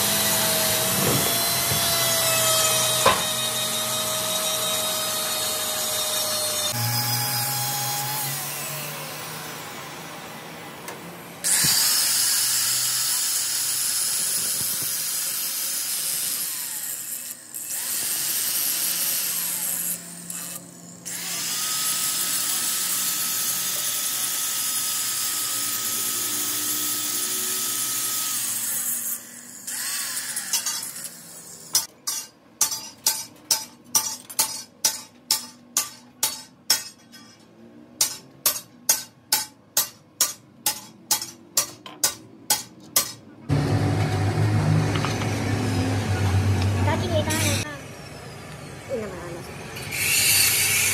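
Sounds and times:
electric grinder grinding steel: 0.0s - 10.6s, 11.4s - 31.9s, 43.5s - 47.9s, 49.0s - 50.9s.

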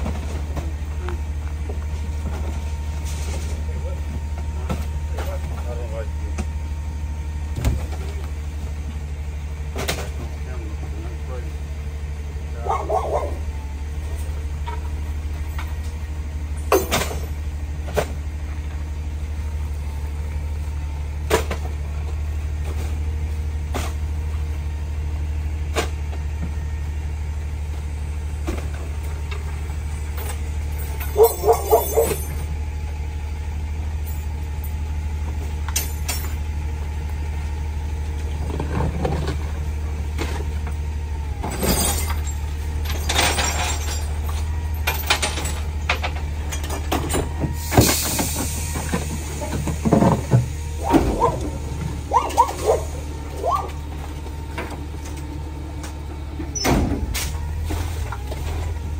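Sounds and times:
garbage truck engine idling: 0.0s - 58.9s
trash thrown into hopper thuds: 41.4s - 58.9s.

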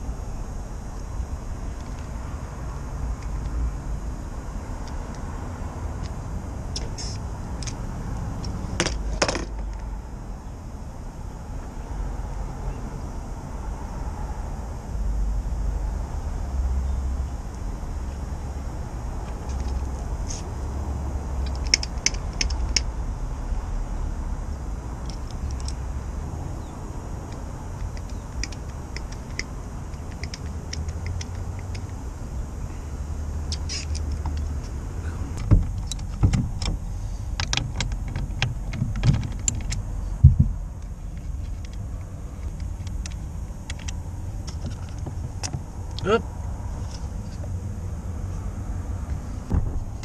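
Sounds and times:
steady low rumble: 0.0s - 50.0s
hydraulic crimper metallic clicks: 21.4s - 22.9s, 27.3s - 32.0s.

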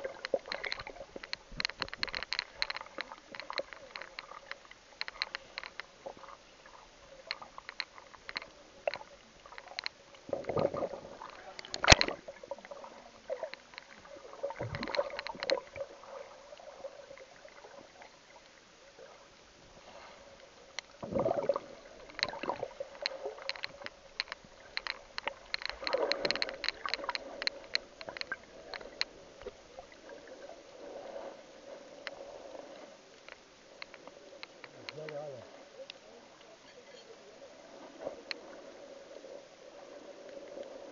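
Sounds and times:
muffled water sloshing underwater: 0.0s - 40.9s
sharp clicks and knocks: 0.1s - 6.3s, 7.2s - 12.3s, 14.6s - 15.7s, 22.0s - 29.6s.

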